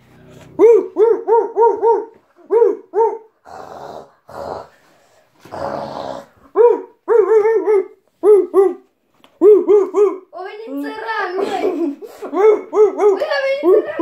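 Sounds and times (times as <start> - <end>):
dog yapping: 0.6 - 3.3, 6.5 - 10.3
dog growling: 3.3 - 6.6.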